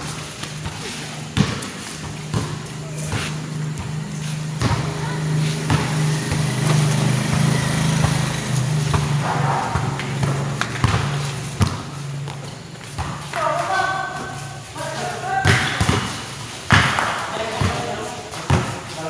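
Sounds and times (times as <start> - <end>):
basketball bouncing on a court: 0.0 - 14.4, 15.2 - 19.0.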